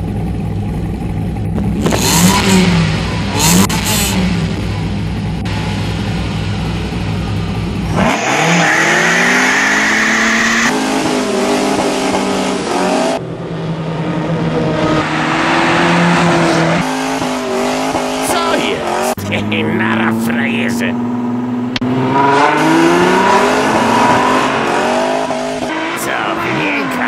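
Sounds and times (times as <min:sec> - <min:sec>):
car engine revving and accelerating: 0:01.4 - 0:27.0.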